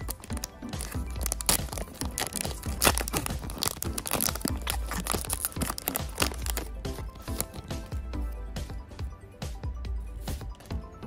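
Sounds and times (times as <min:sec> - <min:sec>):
foil pack tearing and crinkling: 0:00.0 - 0:07.8.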